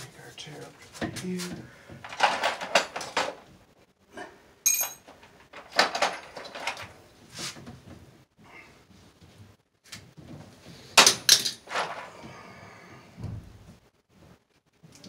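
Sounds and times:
knocks and clatters: 1.9 - 3.6.

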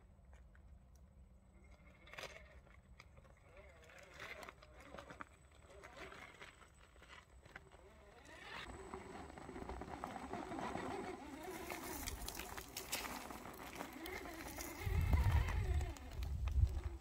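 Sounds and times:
electric motor and gears whining: 1.8 - 17.0
tyres clicking and scraping on stone: 9.6 - 17.0.

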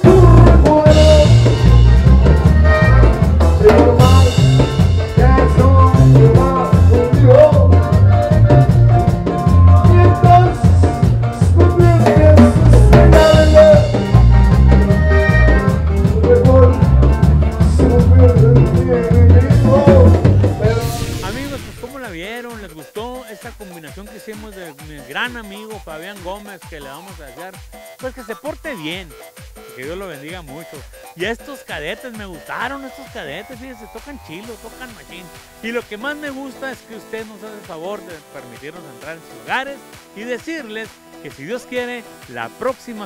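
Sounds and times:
twelve-string guitar: 0.0 - 21.7
electric bass: 0.0 - 22.0
button accordion: 0.0 - 43.0
drum kit beat: 0.0 - 43.0.

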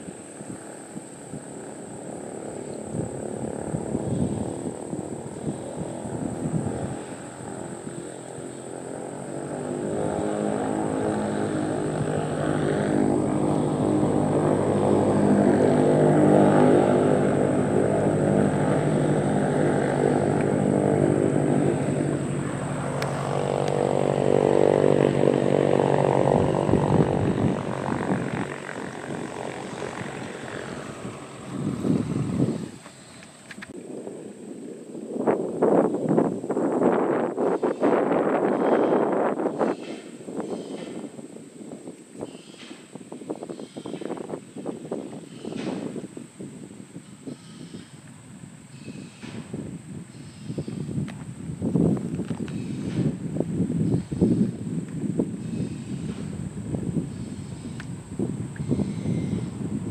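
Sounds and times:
propeller airplane engine: 0.0 - 39.5, 54.5 - 59.9
wind buffeting microphone: 0.0 - 59.9.

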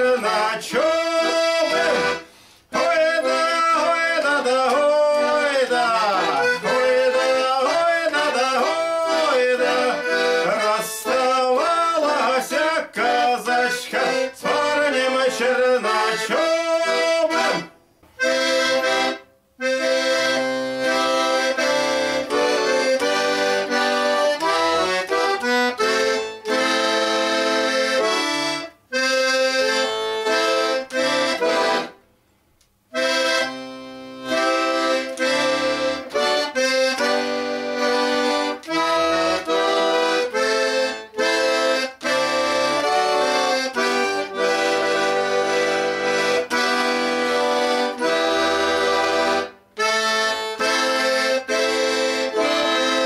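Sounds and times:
button accordion folk tune: 0.0 - 53.0.

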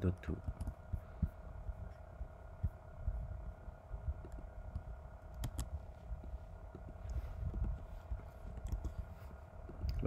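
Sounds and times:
electrical hum: 0.0 - 10.0
low rumble: 0.0 - 10.0
keyboard key clicks: 5.3 - 5.7.

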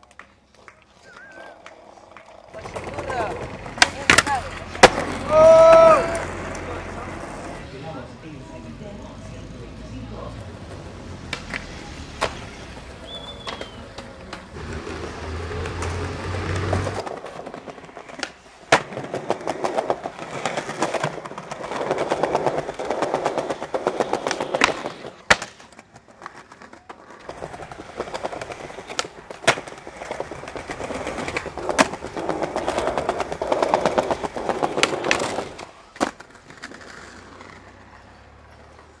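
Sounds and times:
skateboard clacks: 0.0 - 7.6, 10.6 - 39.0
skateboard wheels rolling on tiles: 0.0 - 39.0.

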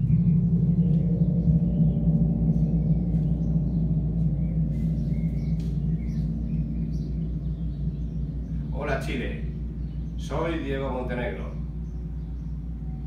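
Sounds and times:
large gong ringing: 0.0 - 13.0.

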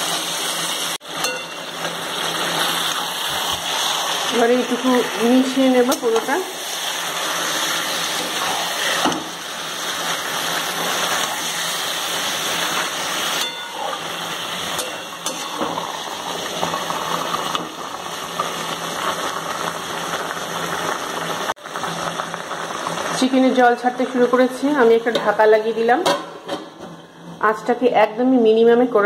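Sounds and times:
chicken sizzling in butter: 0.0 - 25.9
metal spatula scraping pan: 10.0 - 15.9.

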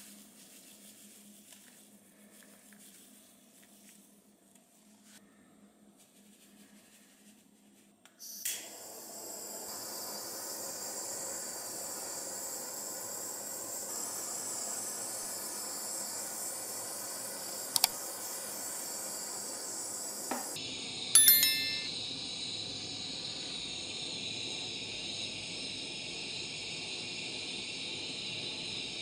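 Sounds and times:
blowtorch flame hissing: 8.4 - 20.6.

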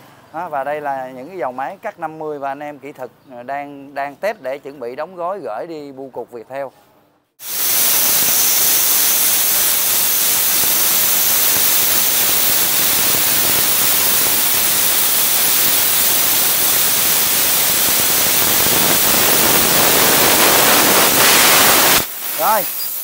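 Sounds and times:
plasma cutter hissing: 7.4 - 23.0.

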